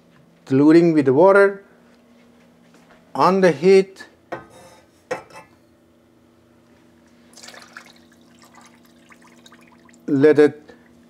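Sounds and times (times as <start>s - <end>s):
sugar pouring into saucepan: 7.3s - 10.1s
water splashing into saucepan: 7.3s - 10.1s.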